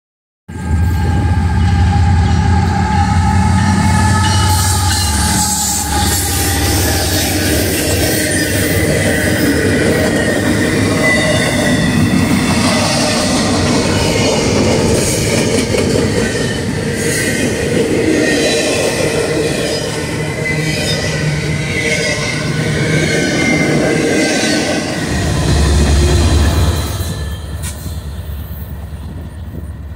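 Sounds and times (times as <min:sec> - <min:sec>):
diesel locomotive engine rumble: 0:00.5 - 0:29.9
high wheel squeal: 0:01.0 - 0:14.5, 0:19.5 - 0:29.2
train wheels clattering on rail: 0:06.0 - 0:19.9, 0:25.4 - 0:29.9.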